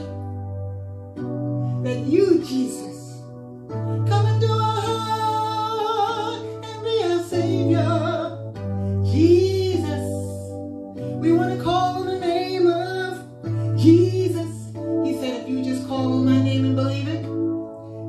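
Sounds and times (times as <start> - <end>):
electronic keyboard chords: 0.0 - 18.0
woman singing: 1.9 - 3.2, 4.1 - 8.4, 9.1 - 10.5, 11.2 - 17.4.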